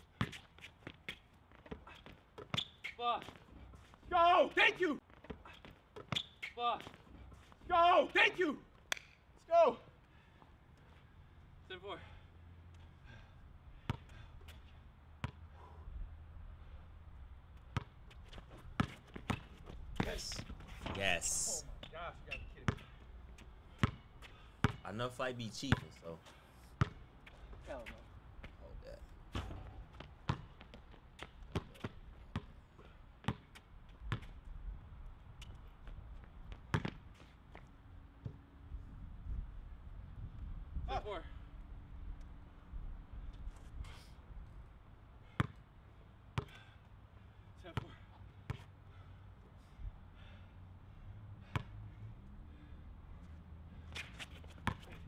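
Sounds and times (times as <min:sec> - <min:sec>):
basketball bouncing on hard court: 0:00.2 - 0:03.4, 0:17.7 - 0:18.0, 0:18.8 - 0:20.4, 0:23.8 - 0:24.0, 0:24.6 - 0:24.8, 0:26.8 - 0:27.0, 0:29.3 - 0:32.6, 0:33.2 - 0:33.5, 0:34.1 - 0:34.3, 0:36.5 - 0:37.0, 0:45.4 - 0:45.6, 0:47.8 - 0:48.6, 0:54.6 - 0:55.0.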